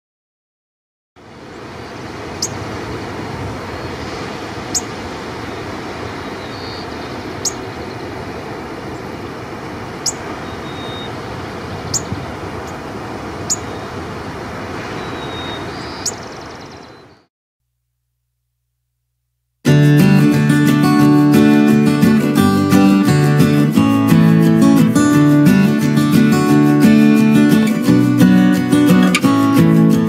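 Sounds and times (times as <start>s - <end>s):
steady background hiss: 1.2s - 16.8s
sparrow call notes: 2.3s - 2.7s, 3.7s - 9.2s, 9.9s - 12.8s, 13.4s - 14.0s, 14.8s - 17.3s.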